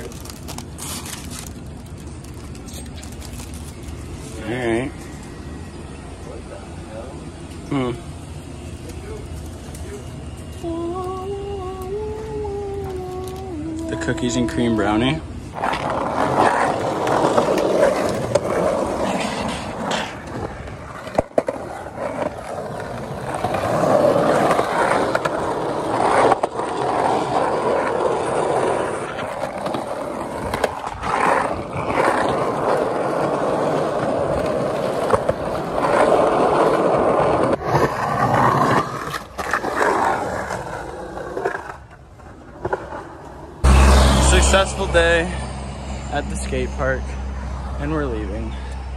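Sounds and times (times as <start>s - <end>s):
skateboard wheels rolling on asphalt: 0.0s - 10.8s, 11.9s - 48.9s
skateboard clacks: 15.6s - 43.5s.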